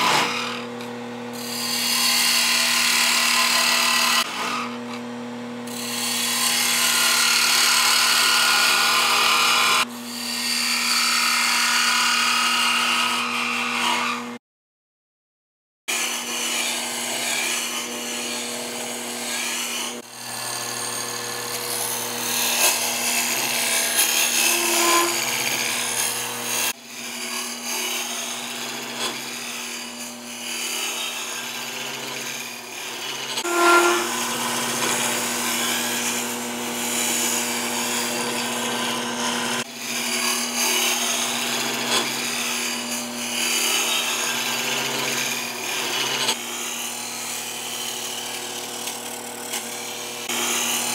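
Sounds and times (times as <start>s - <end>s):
gouge cutting wood shavings: 15.9s - 50.9s.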